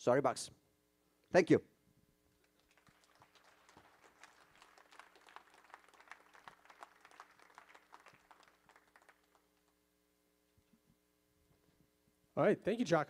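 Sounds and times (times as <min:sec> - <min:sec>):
faint audience applause: 0:02.4 - 0:09.8.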